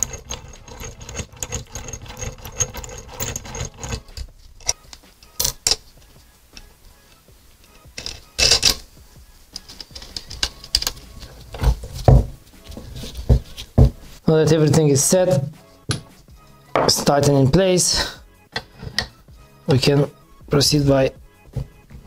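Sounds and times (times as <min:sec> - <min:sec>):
metal parts clinking and rattling: 0:00.0 - 0:05.9, 0:07.6 - 0:08.9, 0:09.6 - 0:12.2.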